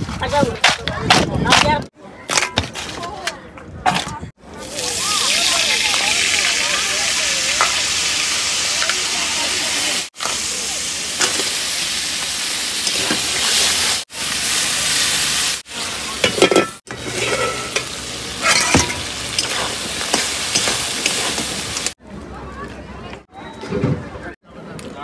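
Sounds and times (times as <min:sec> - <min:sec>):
crab frying in oil: 0:04.6 - 0:22.0
metal spatula scraping pan: 0:16.2 - 0:21.5.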